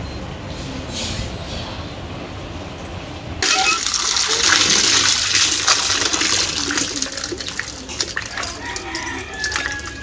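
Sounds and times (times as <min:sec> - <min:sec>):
water gushing and splashing: 0:03.4 - 0:10.0
quiet splashing in a plate: 0:03.5 - 0:10.0.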